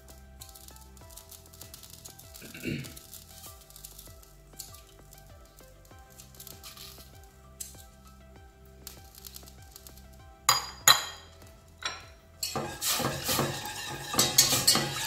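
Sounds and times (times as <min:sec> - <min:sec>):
whisk scraping against pot: 0:12.4 - 0:15.0.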